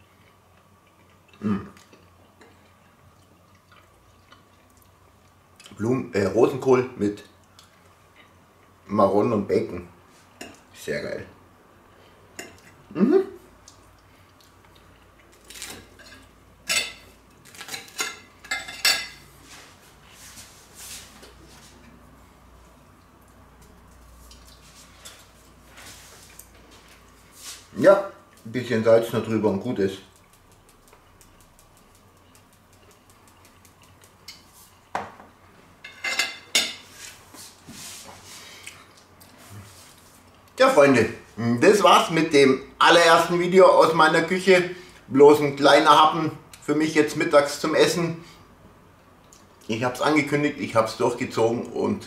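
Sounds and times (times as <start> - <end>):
cutlery clinking and scraping on plate: 35.8 - 37.0.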